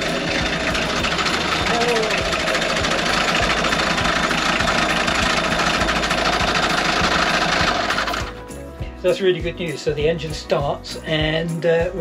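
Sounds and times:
diesel engine idling with clatter: 0:00.0 - 0:08.6.

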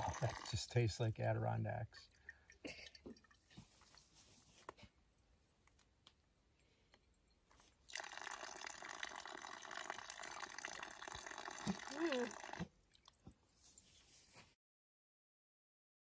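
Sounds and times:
falling water running: 0:00.0 - 0:00.8, 0:07.9 - 0:13.2
water dripping into bottle: 0:02.0 - 0:03.6.

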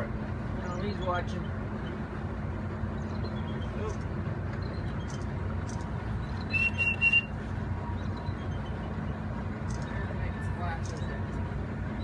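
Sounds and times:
boat engine idling: 0:00.0 - 0:12.0
short high whistle: 0:06.5 - 0:07.4.

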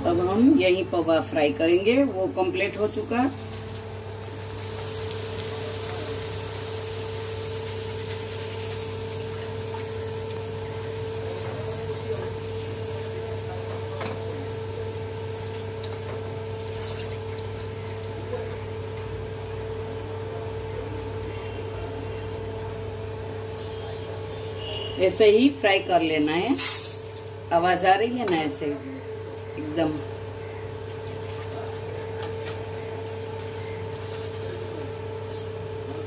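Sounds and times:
food sizzling in hot oil: 0:02.5 - 0:27.4.

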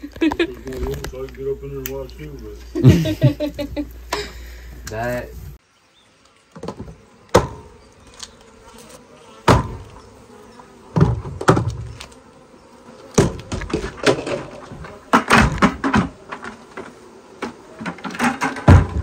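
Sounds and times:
honeybees buzzing: 0:00.0 - 0:19.0
bucket knocks and thumps: 0:10.9 - 0:11.9, 0:13.2 - 0:19.0.

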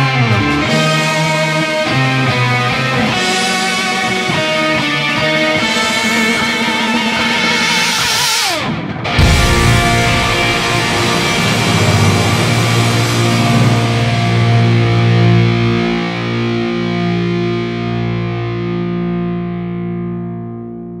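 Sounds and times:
distorted electric guitar metal: 0:00.0 - 0:21.0.

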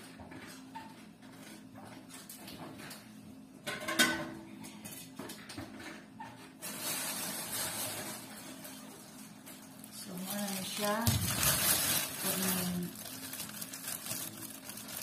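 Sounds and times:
plastic bags crinkling: 0:06.6 - 0:15.0.

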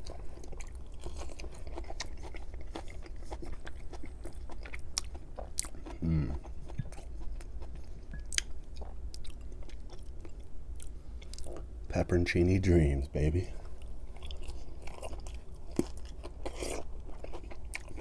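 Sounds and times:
crispy food chewing: 0:00.0 - 0:11.7, 0:13.6 - 0:18.0
person humming: 0:06.0 - 0:06.4.

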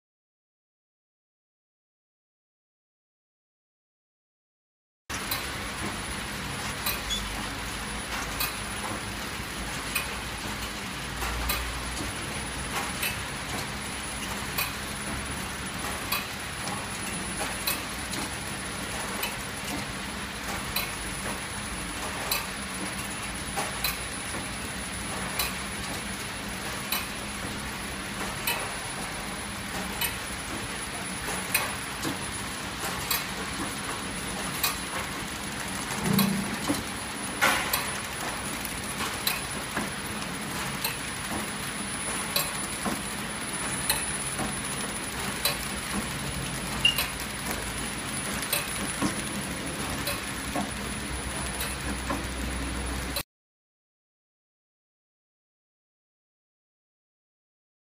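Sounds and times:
packing machine humming: 0:05.1 - 0:53.2
machine clicking: 0:12.7 - 0:15.2, 0:25.1 - 0:26.0, 0:26.8 - 0:27.6, 0:28.2 - 0:28.8, 0:29.7 - 0:30.6, 0:35.8 - 0:43.0, 0:43.6 - 0:52.3.

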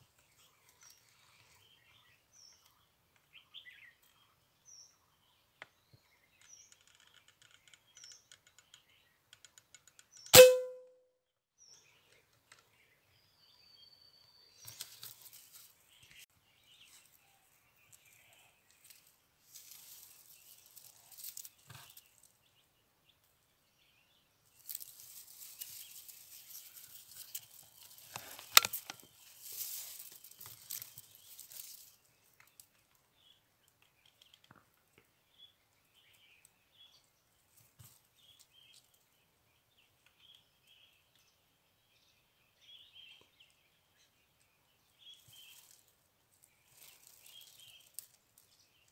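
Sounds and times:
small birds chirping: 0:00.0 - 0:10.4, 0:11.6 - 0:48.9
air rifle firing: 0:10.4 - 0:10.8
rustling handling noise: 0:16.8 - 0:22.3, 0:24.6 - 0:32.0, 0:45.3 - 0:48.5.

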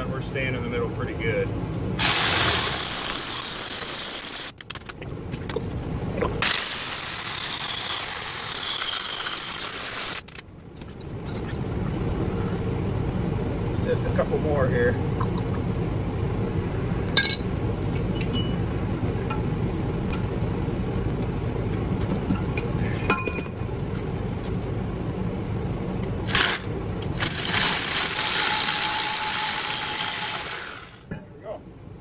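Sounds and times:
fans rumbling: 0:00.0 - 0:08.6, 0:10.2 - 0:32.0
metallic clinks: 0:22.6 - 0:23.8.

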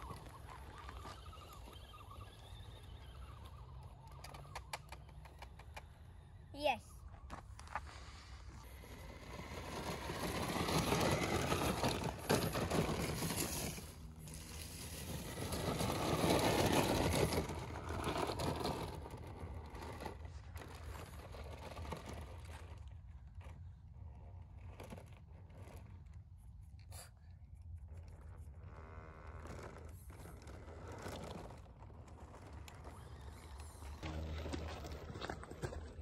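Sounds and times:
electric motors whirring: 0:00.0 - 0:06.5, 0:29.4 - 0:36.0
tyres and chassis scraping: 0:00.0 - 0:06.5, 0:07.2 - 0:27.1, 0:28.2 - 0:36.0.

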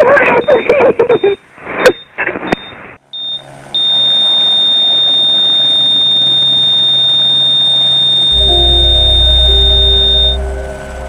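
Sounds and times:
high-pitched electronic tone: 0:03.2 - 0:11.0
lower electronic tones: 0:03.2 - 0:11.0
faint low hum: 0:04.6 - 0:11.0
deep low rumble: 0:08.2 - 0:11.0.

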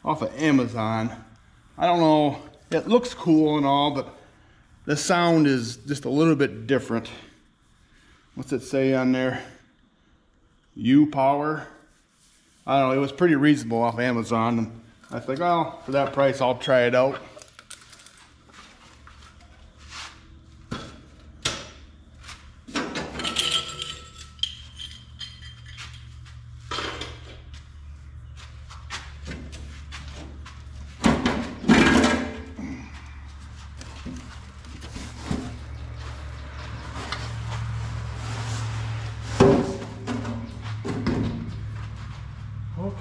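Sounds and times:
metal clanks and knocks: 0:22.7 - 0:26.0, 0:31.0 - 0:32.6.

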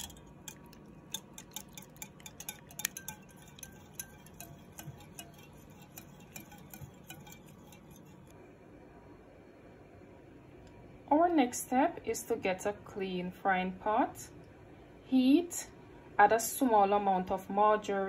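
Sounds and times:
whisk clinking against glass bowl: 0:00.0 - 0:08.3.

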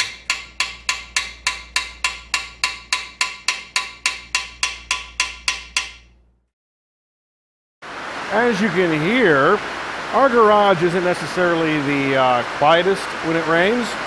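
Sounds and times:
hammer tapping on steel driver: 0:00.0 - 0:06.2.

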